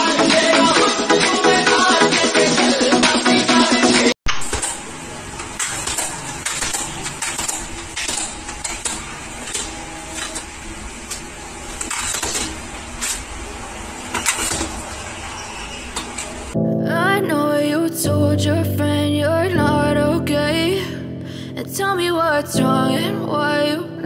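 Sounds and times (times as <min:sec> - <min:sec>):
steady background noise: 0:04.3 - 0:16.6
metal ladder clicking and clacking: 0:05.5 - 0:10.5.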